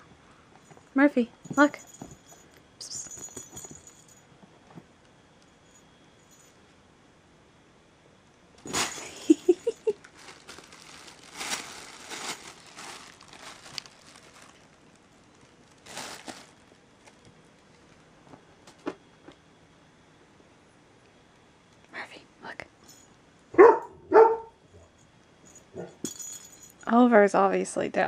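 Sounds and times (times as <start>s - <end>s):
plastic bag rustling: 8.6s - 18.1s.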